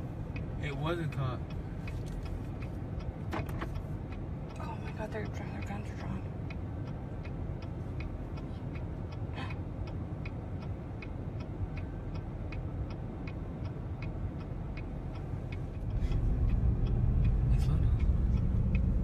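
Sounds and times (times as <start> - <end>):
engine and road rumble: 0.0 - 19.0
car indicator clicking: 0.2 - 19.0.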